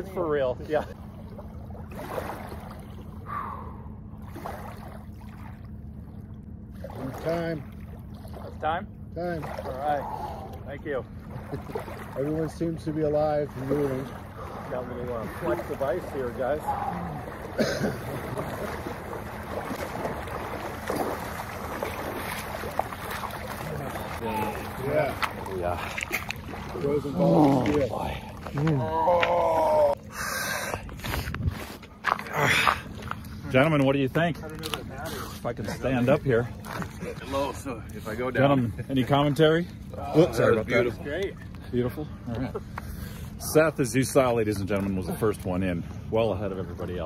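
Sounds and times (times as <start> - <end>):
people wading and splashing: 0.0 - 47.0
small waves lapping against ice: 0.7 - 3.3, 6.7 - 38.3
wind rumble on microphone: 30.8 - 31.8.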